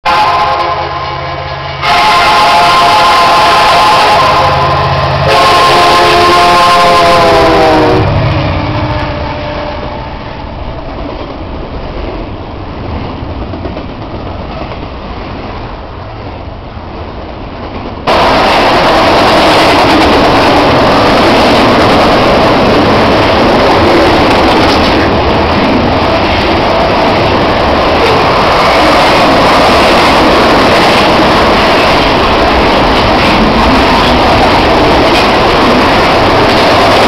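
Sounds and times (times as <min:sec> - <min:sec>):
locomotive horn: 0:00.0 - 0:10.6
train wheels clattering on rails: 0:10.7 - 0:16.3, 0:17.0 - 0:37.0.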